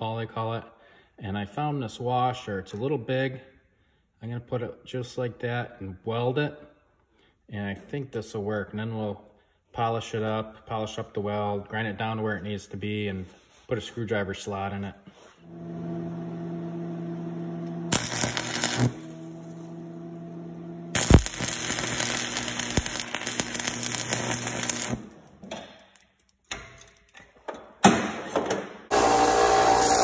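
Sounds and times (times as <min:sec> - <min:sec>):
welder humming: 0:15.5 - 0:25.3, 0:28.9 - 0:30.0
arc welding crackling: 0:17.9 - 0:19.9, 0:20.9 - 0:25.3, 0:28.9 - 0:30.0.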